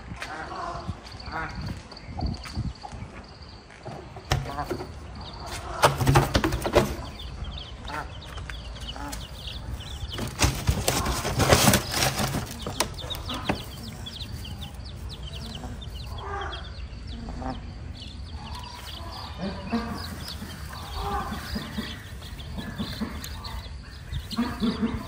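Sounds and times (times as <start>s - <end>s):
chicks peeping: 0.1s - 25.0s
rustling in straw: 18.6s - 23.3s.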